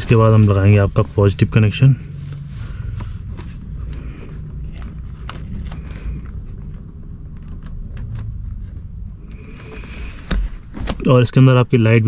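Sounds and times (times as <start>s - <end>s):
steady low rumble: 0.0s - 12.0s
handling noise: 2.2s - 11.2s.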